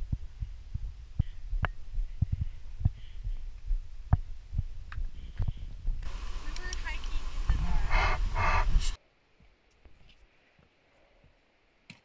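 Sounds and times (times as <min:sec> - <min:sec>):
steady low rumble: 0:00.0 - 0:09.0.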